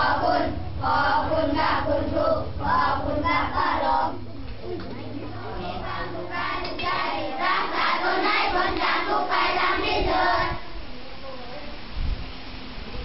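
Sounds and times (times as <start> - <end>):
children chanting in unison: 0.0 - 4.3, 5.2 - 10.8.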